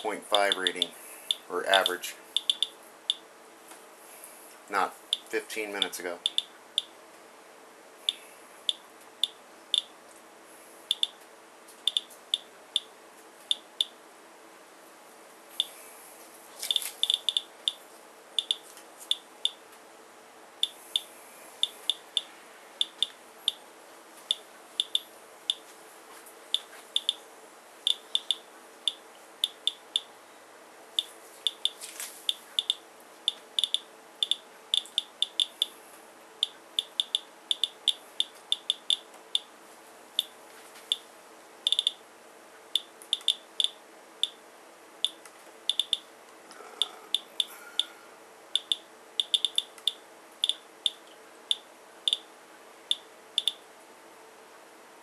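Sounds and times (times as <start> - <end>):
geiger counter beeping: 0.4 - 3.2, 5.1 - 6.9, 10.9 - 11.1, 11.9 - 12.4, 16.7 - 17.8, 18.4 - 19.6, 20.6 - 23.6, 24.3 - 25.6, 27.9 - 30.1, 31.0 - 31.8, 32.6 - 32.8, 33.6 - 35.7, 36.8 - 39.4, 41.7 - 42.0, 42.8 - 44.4, 45.0 - 46.0, 48.6 - 49.7, 50.4 - 52.2, 52.9 - 53.6.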